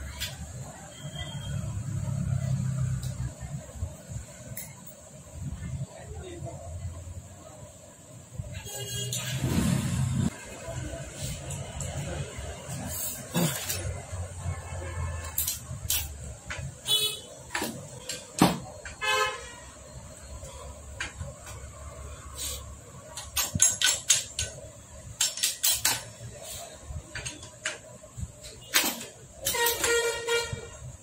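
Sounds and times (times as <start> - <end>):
vehicle horn toots: 8.6 - 9.5, 29.5 - 30.8.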